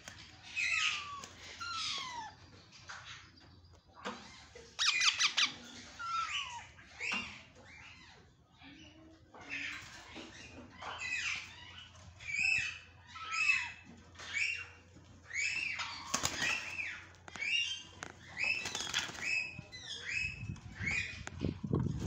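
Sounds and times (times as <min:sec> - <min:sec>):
parakeets squawking: 0:00.1 - 0:02.4, 0:04.2 - 0:08.2
bird wings flapping: 0:16.0 - 0:16.8, 0:18.5 - 0:19.5.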